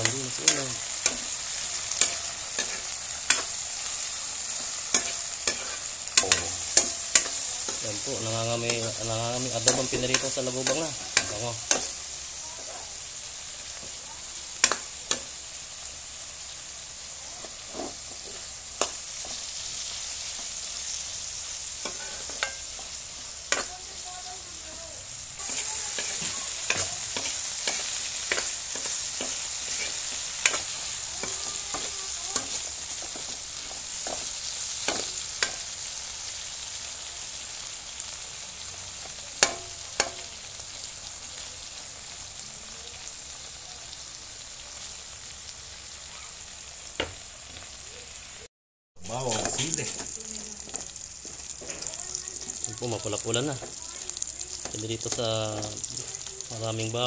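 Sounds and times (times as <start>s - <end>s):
beetles sizzling in oil: 0.0s - 57.0s
metal ladle scraping a pan: 4.5s - 7.8s, 21.8s - 23.7s, 25.4s - 35.7s, 50.7s - 52.6s.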